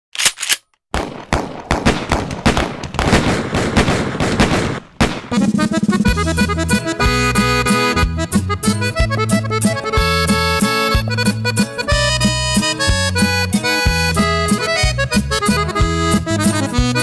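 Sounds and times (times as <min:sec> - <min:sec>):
rapid gunfire: 0:00.9 - 0:06.1
accordion melody: 0:05.3 - 0:17.0
rhythmic bass line: 0:05.4 - 0:17.0.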